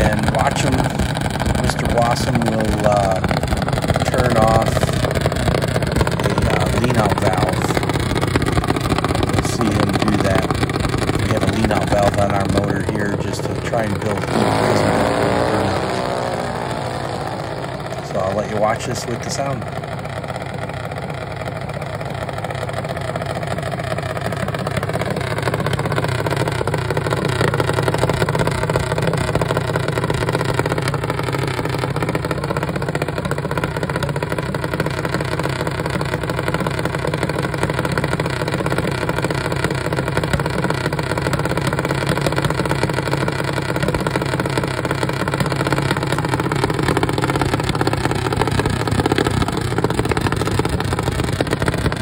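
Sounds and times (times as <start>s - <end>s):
single-cylinder engine idling: 0.0s - 52.0s.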